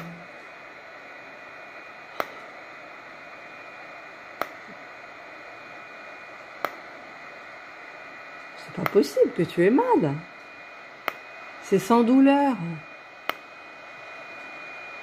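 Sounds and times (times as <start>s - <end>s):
faint whine: 0.0s - 15.0s
hair-removal handset clicks: 6.6s - 6.8s.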